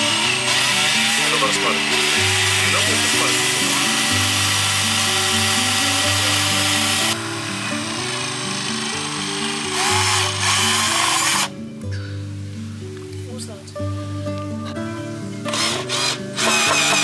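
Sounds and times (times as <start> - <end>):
cordless drill boring into wood: 0.0 - 11.5, 15.5 - 17.0
background music: 0.0 - 17.0.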